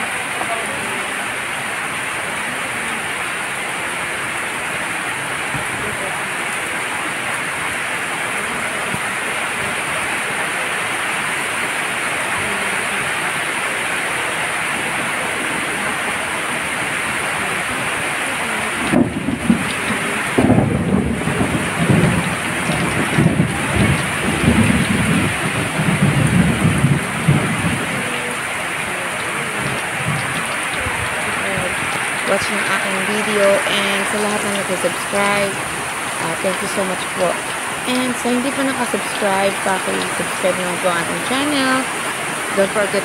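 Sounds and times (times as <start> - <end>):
heavy rain falling: 0.0 - 43.0
thunder rumbling: 14.8 - 43.0.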